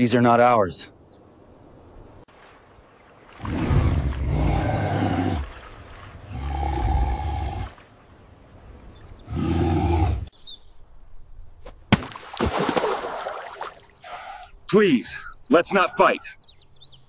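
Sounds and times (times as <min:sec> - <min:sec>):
deep drawn-out roars: 0:03.4 - 0:05.5, 0:06.2 - 0:07.7, 0:09.2 - 0:10.3
water splash: 0:11.9 - 0:14.0.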